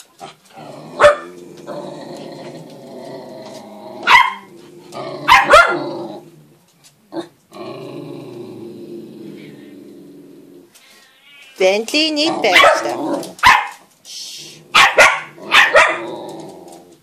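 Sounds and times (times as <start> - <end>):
dogs barking: 1.0 - 1.4, 4.0 - 4.5, 5.2 - 5.9, 12.4 - 13.8, 14.7 - 16.1
dog vocalising: 12.1 - 13.4.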